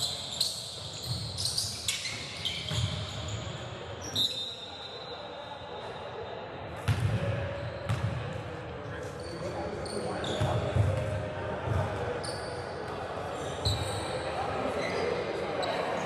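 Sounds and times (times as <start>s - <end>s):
sneakers squeaking: 0.0s - 5.8s, 6.8s - 16.0s
basketball bouncing: 7.9s - 8.1s.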